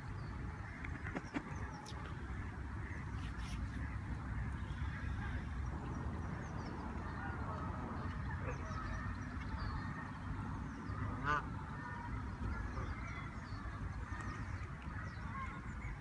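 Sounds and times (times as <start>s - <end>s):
geese honking: 11.2s - 11.9s.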